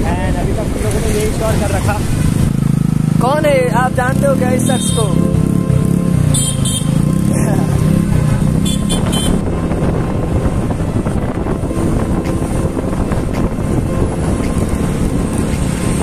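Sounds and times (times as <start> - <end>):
moving vehicle rumble: 0.0 - 16.0
wind buffeting microphone: 7.1 - 16.0.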